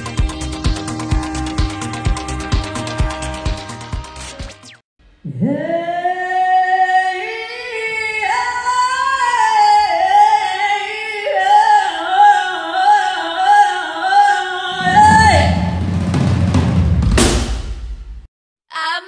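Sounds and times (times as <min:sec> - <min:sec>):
woman singing unaccompanied: 0:05.3 - 0:15.5.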